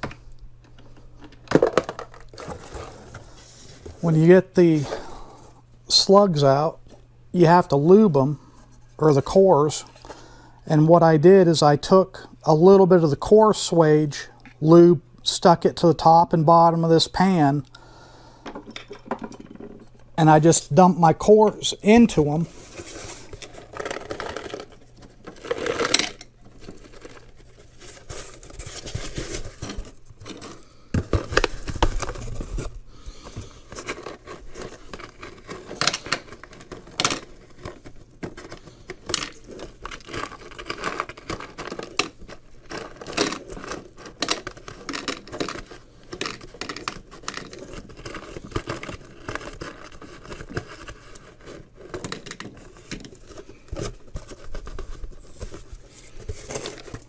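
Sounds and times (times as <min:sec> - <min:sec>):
cardboard scraping and rustling: 0:02.3 - 0:04.2, 0:22.0 - 0:57.0.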